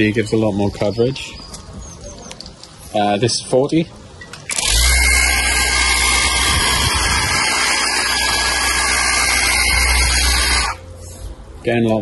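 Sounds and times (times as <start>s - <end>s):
pump motor humming and whining: 4.5s - 10.9s.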